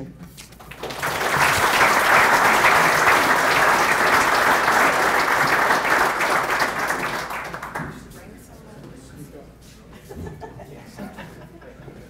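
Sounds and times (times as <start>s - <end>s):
audience applauding: 0.6s - 8.1s.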